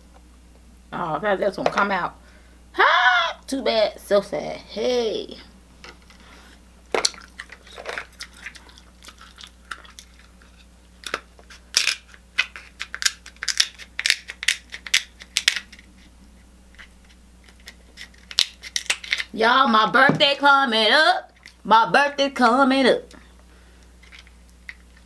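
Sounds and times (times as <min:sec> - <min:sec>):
seafood shells cracking: 0:06.9 - 0:15.9, 0:16.7 - 0:19.3.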